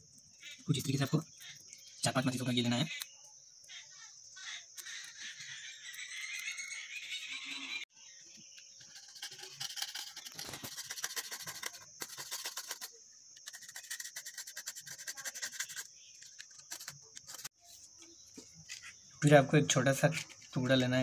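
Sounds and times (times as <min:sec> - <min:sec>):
match scraping on matchbox: 0:08.8 - 0:17.6.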